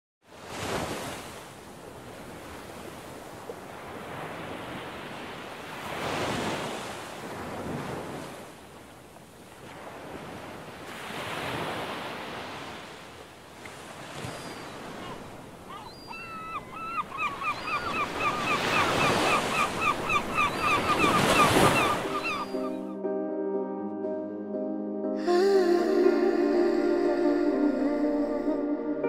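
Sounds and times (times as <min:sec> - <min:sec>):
ocean waves washing: 0:00.3 - 0:23.0.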